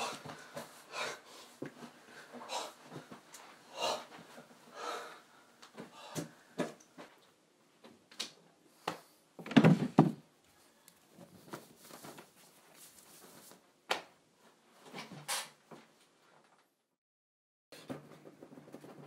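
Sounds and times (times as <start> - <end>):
knocks and rustling: 9.4 - 10.3.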